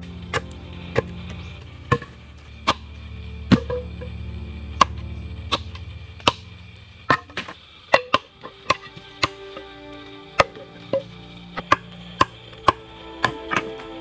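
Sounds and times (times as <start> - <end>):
low steady hum: 0.0 - 14.0.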